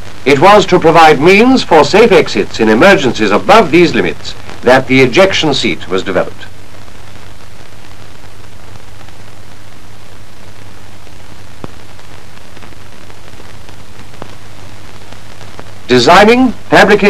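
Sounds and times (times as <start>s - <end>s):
film soundtrack hiss and hum: 0.0s - 17.0s
faint clicks: 13.7s - 14.4s.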